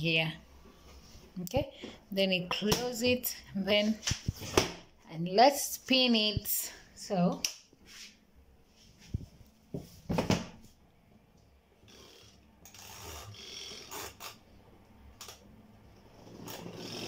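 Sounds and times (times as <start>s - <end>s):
spin motor humming: 16.1s - 17.0s.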